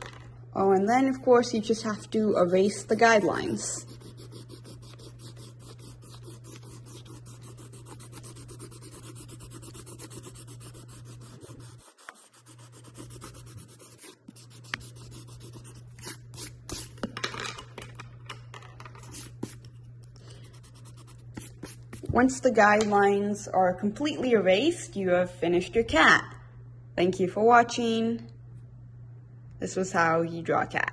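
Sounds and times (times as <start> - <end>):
eraser scrubbing on paper: 2.4 - 16.9, 20.5 - 22.1.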